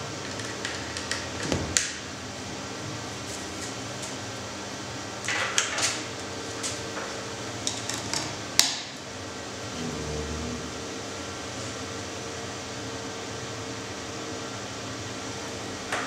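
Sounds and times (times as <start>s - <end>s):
hum and hiss: 8.9s - 16.0s.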